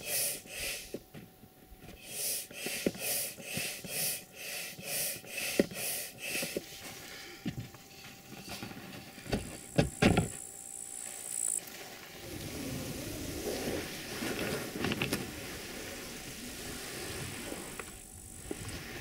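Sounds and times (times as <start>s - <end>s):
sharp knocks of seat board: 9.3s - 10.4s
boat dragged through dry grass: 11.6s - 19.0s.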